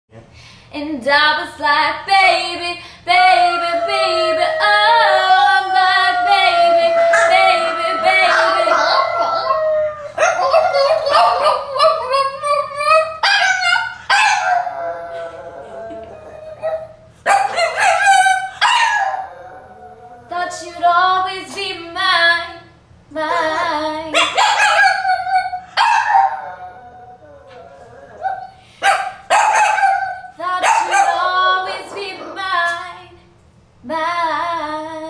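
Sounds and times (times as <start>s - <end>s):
woman singing: 0.7s - 9.1s, 20.3s - 24.3s, 30.4s - 35.0s
dog howling: 3.1s - 20.5s, 23.2s - 32.6s.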